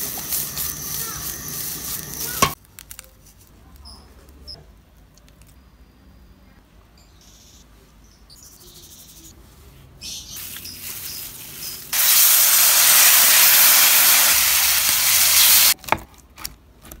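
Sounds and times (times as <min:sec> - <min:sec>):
chicken sizzling in a frying pan: 0:00.0 - 0:02.6, 0:10.4 - 0:15.8.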